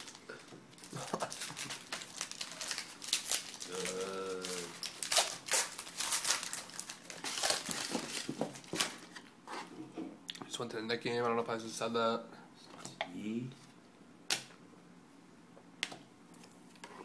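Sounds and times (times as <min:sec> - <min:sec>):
wrapper crinkling and tearing: 0:00.0 - 0:09.2.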